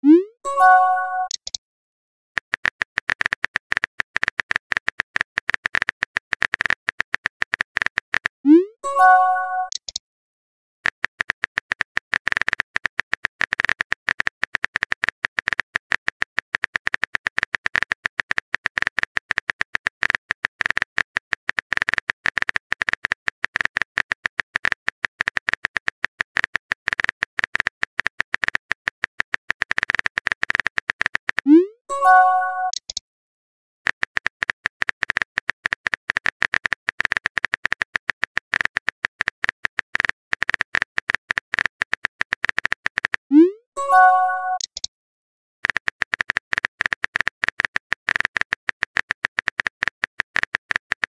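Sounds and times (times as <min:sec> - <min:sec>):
phone keyboard clicking: 0:01.2 - 0:01.6, 0:09.7 - 0:10.0, 0:33.9 - 0:43.2, 0:45.6 - 0:51.0.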